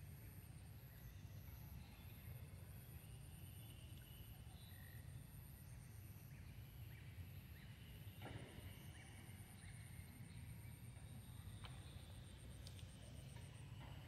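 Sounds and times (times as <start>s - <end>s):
soft click or rustle: 12.6s - 13.0s.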